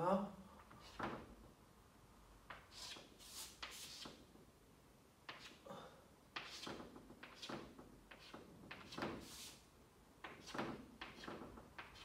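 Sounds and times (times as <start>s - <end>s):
chalk tapping and scraping on blackboard: 0.7s - 1.3s, 2.4s - 4.3s, 5.2s - 5.6s, 6.3s - 12.0s.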